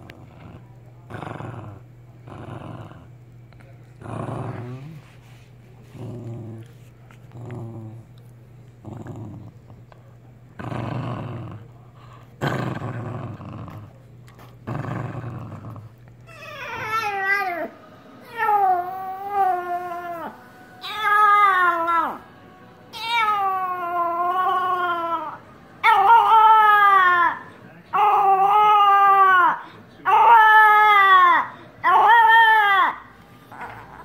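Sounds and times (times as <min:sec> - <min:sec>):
dog growling: 0:00.0 - 0:03.2, 0:03.9 - 0:05.2, 0:05.8 - 0:09.9, 0:10.5 - 0:22.3, 0:22.9 - 0:34.0
dog howling: 0:16.3 - 0:22.3, 0:22.9 - 0:34.0.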